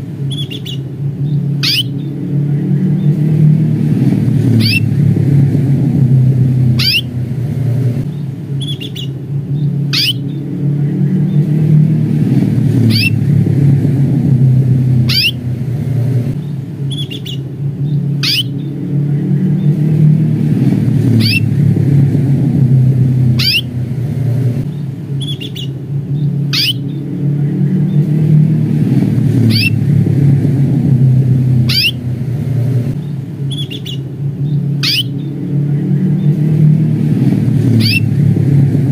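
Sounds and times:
canary call notes: 0.0s - 2.2s, 4.4s - 5.0s, 6.6s - 7.2s, 8.6s - 10.5s, 12.8s - 13.2s, 15.0s - 15.5s, 16.9s - 18.8s, 21.0s - 21.6s, 23.3s - 23.8s, 25.2s - 27.1s, 29.4s - 29.8s, 31.6s - 32.1s, 33.5s - 35.4s, 37.6s - 38.1s
steady low rumble: 0.0s - 38.9s
faint chirps: 33.5s - 35.4s.

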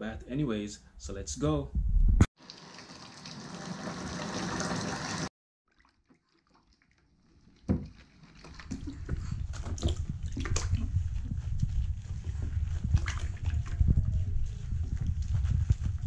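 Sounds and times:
bath tap running: 2.4s - 5.3s
water splashing and sloshing: 2.4s - 15.9s.

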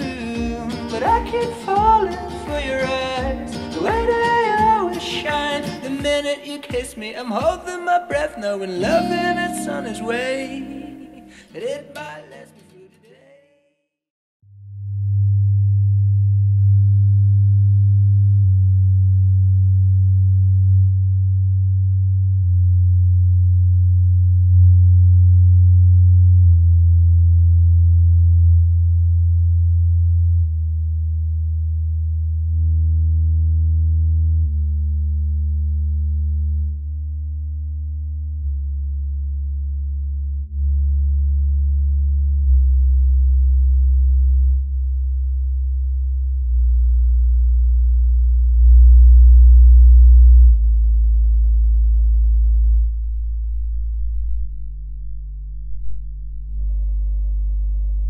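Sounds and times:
low sine test tone: 0.0s - 5.6s, 8.8s - 11.4s, 14.4s - 58.0s
pop song through speakers: 0.0s - 13.5s.

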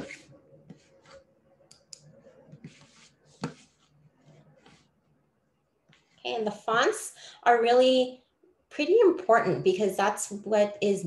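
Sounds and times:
soft desk noises: 0.0s - 7.0s.

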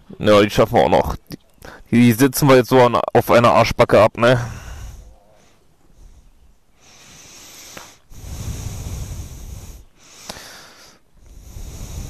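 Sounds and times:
person breathing inside helmet: 4.4s - 12.0s.

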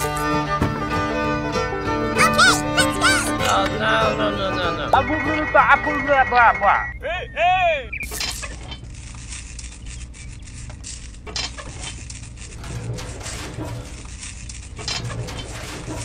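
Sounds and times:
steady low hum: 0.3s - 16.0s
sandbags rustling and clicking: 8.8s - 16.0s.

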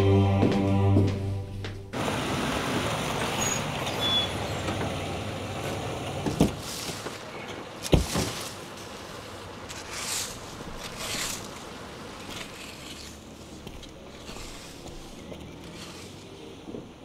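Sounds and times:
car engine and tyre noise: 1.6s - 17.0s
car doors shutting: 3.2s - 8.4s.

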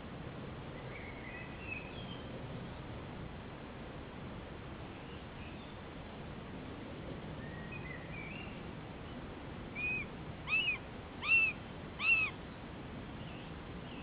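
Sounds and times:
buzzard chick calling: 9.8s - 12.4s.

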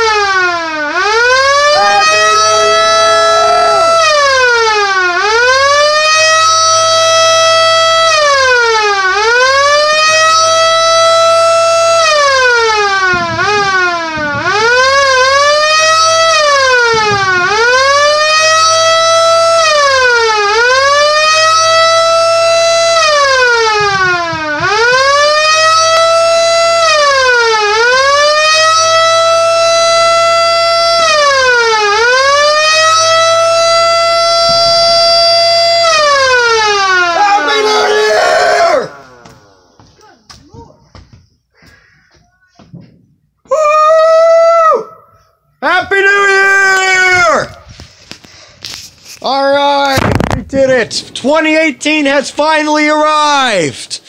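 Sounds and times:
air raid siren wailing: 0.0s - 40.0s.

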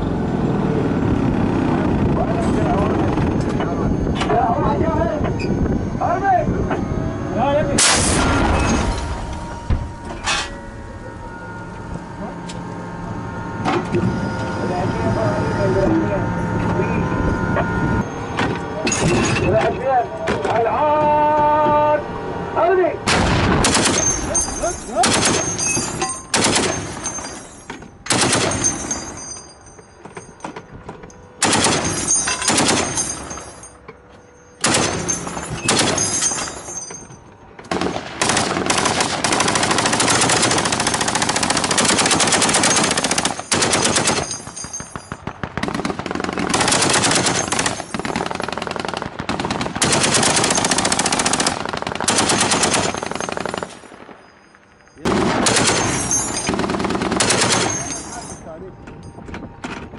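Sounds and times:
machine gun firing bursts: 23.6s - 24.2s, 25.0s - 25.7s, 26.3s - 27.0s, 28.1s - 28.8s, 31.4s - 33.0s, 34.6s - 36.0s, 37.7s - 54.1s, 55.0s - 57.9s.

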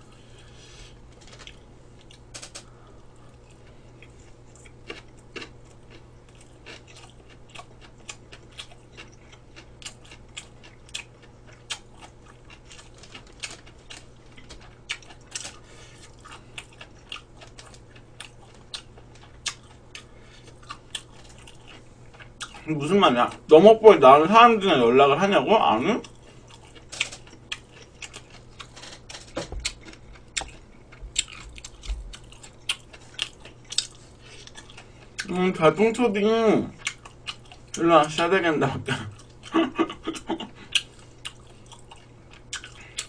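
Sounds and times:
low steady hum: 0.0s - 43.0s
chewing mouth clicks: 3.2s - 22.6s, 29.6s - 35.3s, 40.7s - 43.0s.

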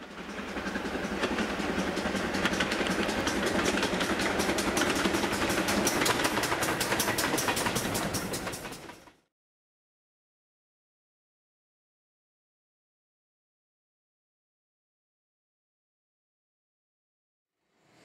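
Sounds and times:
train wheels clicking over rail joints: 0.0s - 9.3s.

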